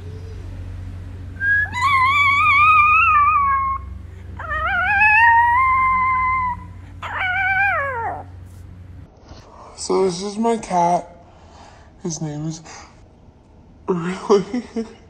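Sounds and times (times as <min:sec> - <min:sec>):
small dog howling: 0:01.4 - 0:08.3.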